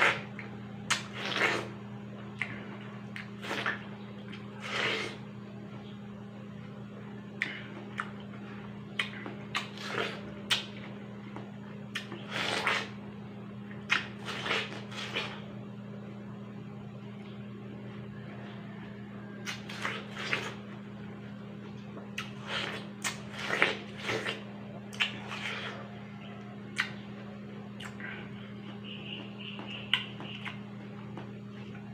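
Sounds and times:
wet eating bites and slurps: 0.0 - 5.2, 8.9 - 11.0, 11.9 - 13.1, 13.7 - 15.5, 19.4 - 20.8, 22.1 - 26.0
steady low hum: 0.0 - 31.9.

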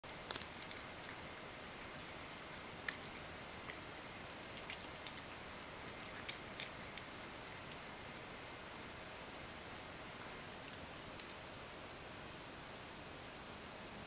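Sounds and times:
cat chewing and lip licking: 0.0 - 8.6, 9.5 - 11.7.

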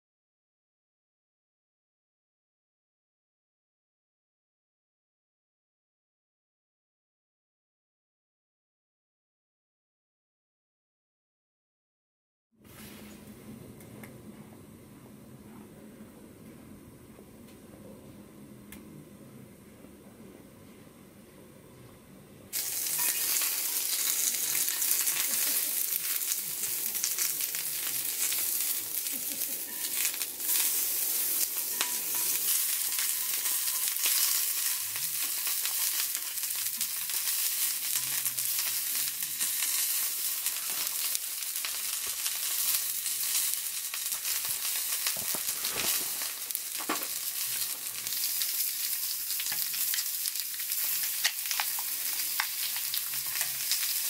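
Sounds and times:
meat sizzling in a skillet: 22.6 - 54.0.

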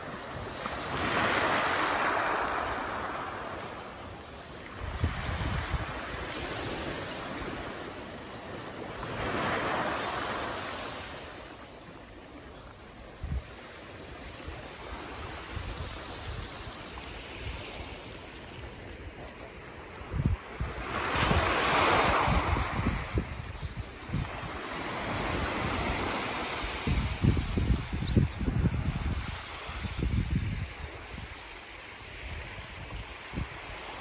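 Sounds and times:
waves breaking on pebble beach: 0.0 - 11.4, 13.7 - 27.8
wind gusts on microphone: 4.6 - 7.8, 13.0 - 34.0.

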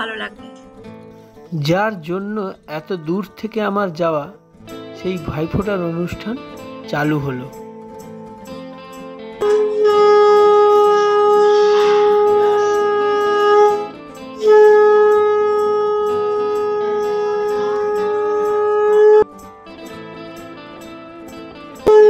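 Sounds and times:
conch shell blasts: 9.4 - 19.3.

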